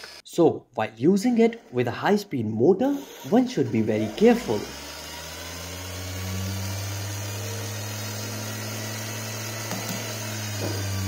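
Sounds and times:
electric motor humming: 2.9s - 11.0s.

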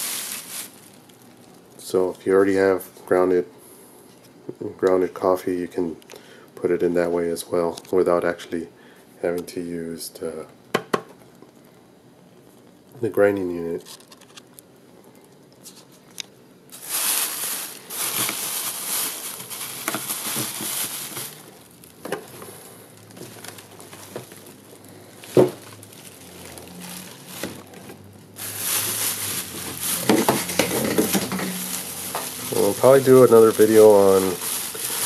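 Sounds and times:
plastic wrapping crinkling: 0.0s - 2.6s, 12.4s - 35.0s.

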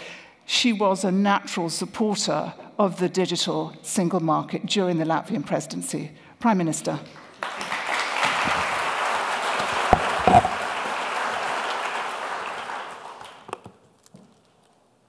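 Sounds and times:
audience applauding: 7.3s - 13.6s
dull knocks: 9.9s - 10.6s.

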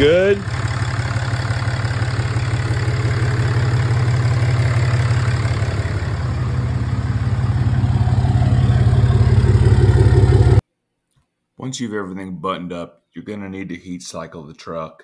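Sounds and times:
diesel engine idling: 0.0s - 10.6s.

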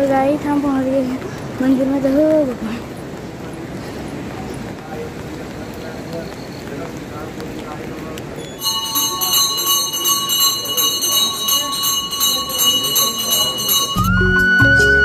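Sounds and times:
temple bell ringing: 8.4s - 15.0s
background music with flute: 14.0s - 15.0s.

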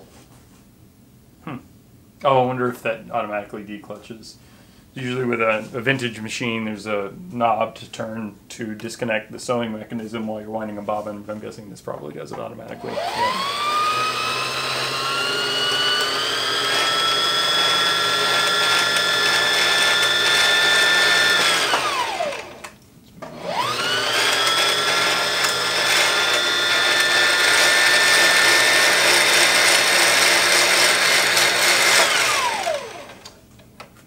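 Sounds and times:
sewing machine motor whine: 12.9s - 22.7s, 23.3s - 33.2s.

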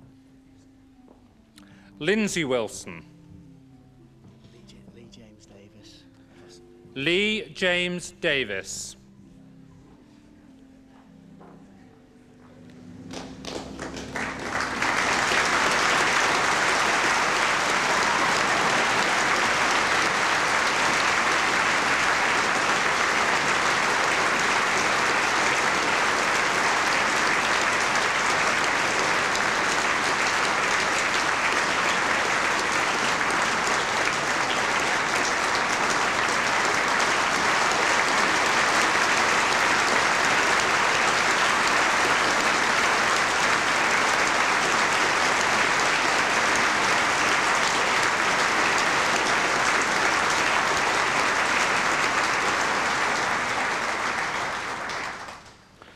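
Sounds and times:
large audience applauding: 13.0s - 55.9s.

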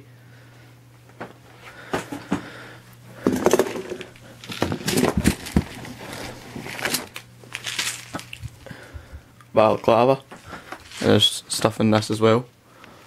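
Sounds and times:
rummaging in cardboard box: 3.3s - 8.6s, 10.7s - 11.2s.

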